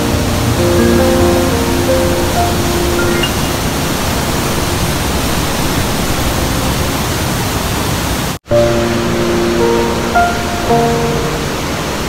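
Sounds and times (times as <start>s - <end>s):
background music: 0.0s - 4.5s
waterfall rushing: 0.0s - 12.0s.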